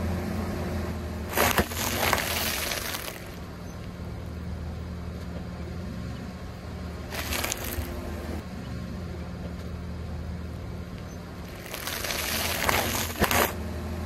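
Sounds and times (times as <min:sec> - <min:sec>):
car engine idling: 0:00.0 - 0:14.0
plastic packets crinkling and crunching: 0:01.3 - 0:03.4, 0:07.1 - 0:07.9, 0:11.4 - 0:13.6
sharp cracks: 0:01.3 - 0:03.4, 0:11.4 - 0:13.6.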